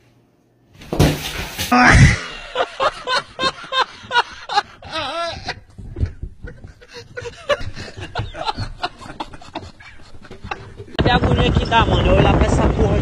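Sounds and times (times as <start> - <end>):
high wavering laugh: 1.7 - 11.0
men laughing: 1.7 - 11.0.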